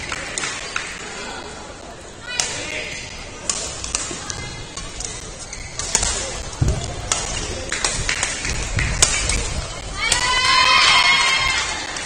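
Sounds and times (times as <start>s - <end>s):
rackets striking shuttlecocks: 2.3s - 11.0s.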